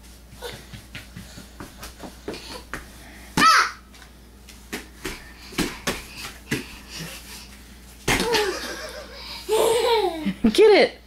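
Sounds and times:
toddler's hands slapping floor: 0.3 - 4.1, 8.0 - 8.6.

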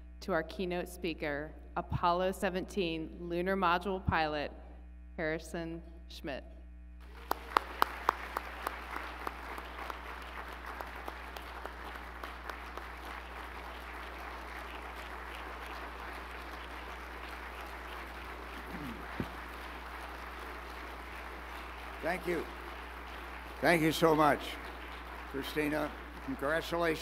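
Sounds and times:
audience applauding: 7.0 - 27.0
loud separate claps: 7.0 - 27.0.

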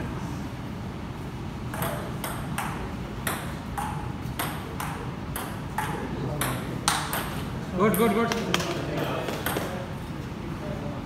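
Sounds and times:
table tennis ball clicking: 1.7 - 8.7.

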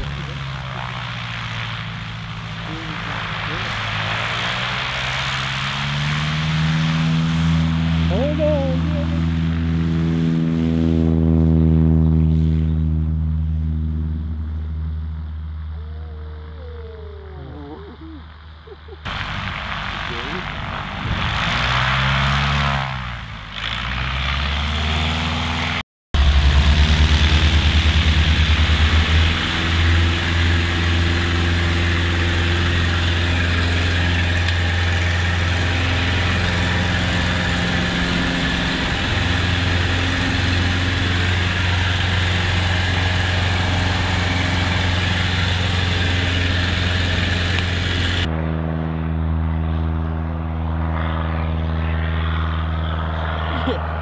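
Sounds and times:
light plane piston engine: 26.2 - 54.0.

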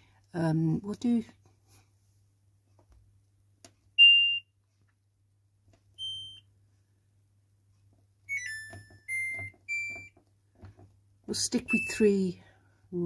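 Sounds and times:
washing machine panel beeps: 4.0 - 4.5, 6.0 - 6.5, 8.3 - 10.2, 11.6 - 12.3.

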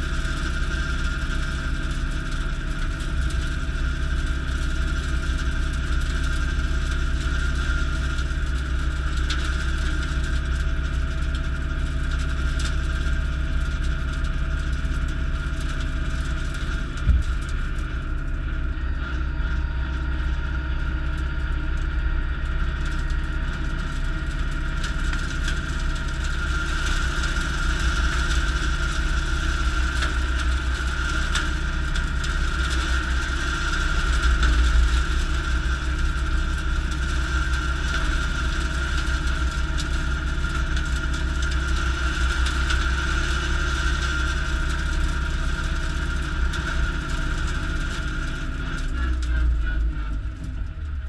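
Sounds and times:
tractor diesel engine: 12.9 - 51.0
rotary cutter whine: 15.5 - 51.0.

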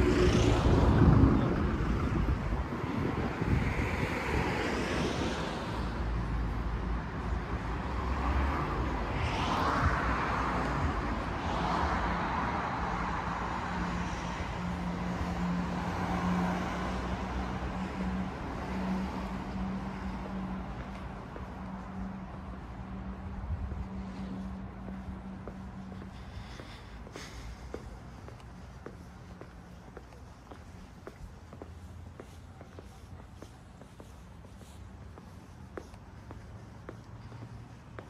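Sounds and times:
cars passing on road: 0.0 - 38.0.

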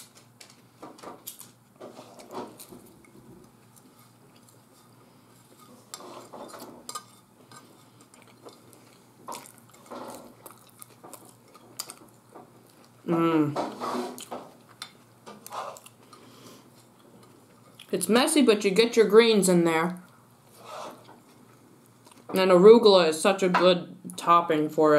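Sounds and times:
faint chewing: 0.1 - 13.0, 14.1 - 18.0, 20.0 - 22.4.

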